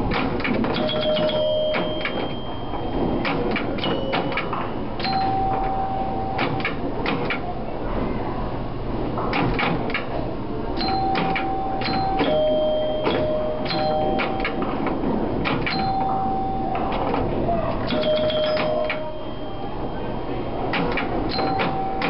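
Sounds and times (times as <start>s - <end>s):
pinball machine clicks and clacks: 0.0s - 7.5s, 9.2s - 10.2s, 10.8s - 19.3s, 20.6s - 22.0s
pinball bells ringing: 0.8s - 6.9s, 10.8s - 17.2s, 17.8s - 22.0s.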